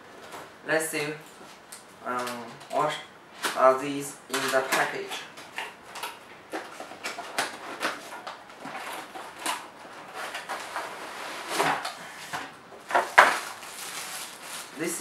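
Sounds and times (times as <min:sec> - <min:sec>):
cardboard box scraping and rustling: 0:10.0 - 0:11.9.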